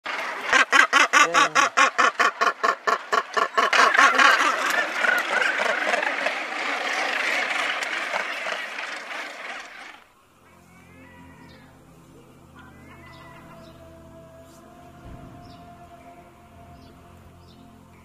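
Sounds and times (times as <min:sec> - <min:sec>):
din of many gannets calling: 0:00.1 - 0:10.0, 0:10.7 - 0:11.8, 0:12.5 - 0:14.6
gannet calling rapidly: 0:00.1 - 0:10.0, 0:10.7 - 0:11.8, 0:12.5 - 0:14.0.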